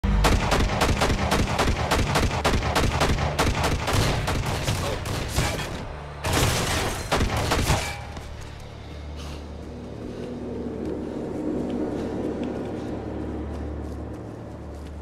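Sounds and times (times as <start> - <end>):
rapid gunfire: 0.1 - 7.8.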